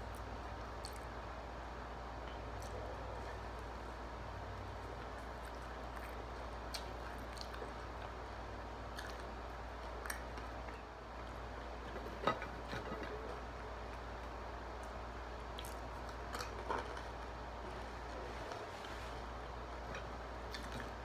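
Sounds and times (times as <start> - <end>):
person chewing crunchy food: 4.6 - 10.7, 15.5 - 21.0.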